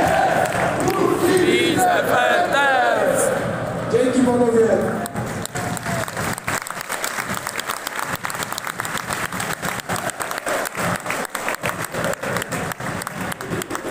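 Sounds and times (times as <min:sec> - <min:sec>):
crowd applauding: 0:00.0 - 0:02.7, 0:05.0 - 0:13.9.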